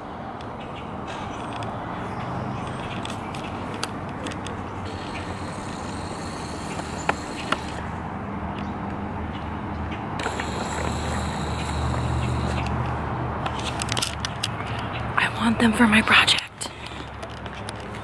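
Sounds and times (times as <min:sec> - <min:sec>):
faint engine hum: 0:00.0 - 0:18.0
road traffic noise: 0:00.0 - 0:18.0
sharp clicks: 0:02.6 - 0:09.0, 0:09.9 - 0:14.9.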